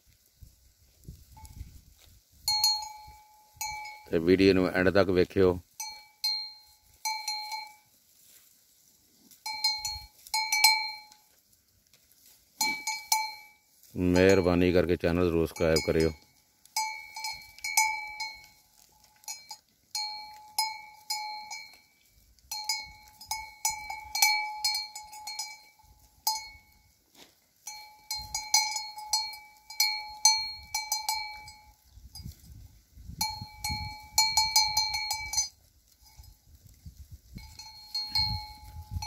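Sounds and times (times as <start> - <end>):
animal bells clanking: 1.2 - 8.4, 9.0 - 11.4, 12.2 - 39.0.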